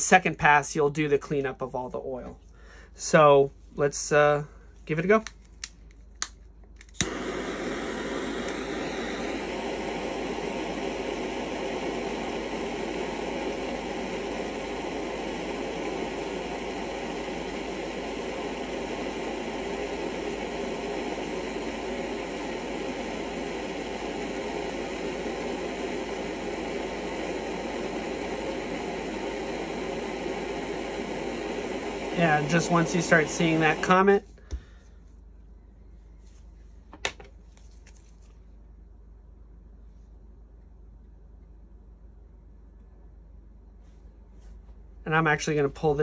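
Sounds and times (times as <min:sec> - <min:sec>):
jet torch hissing: 0:06.9 - 0:34.2.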